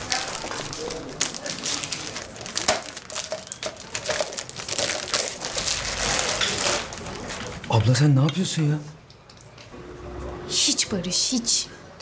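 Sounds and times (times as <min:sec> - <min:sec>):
crinkling and rustling: 0:00.0 - 0:08.0.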